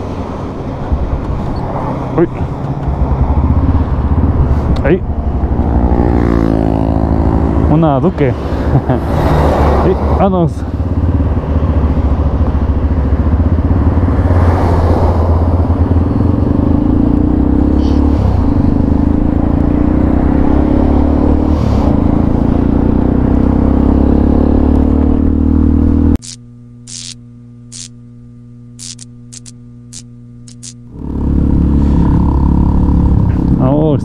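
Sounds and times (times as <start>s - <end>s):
wind and road noise: 0.0s - 27.9s, 28.8s - 34.0s
motorcycle engine running: 10.2s - 27.9s, 28.8s - 34.0s
steady hum: 26.2s - 32.1s.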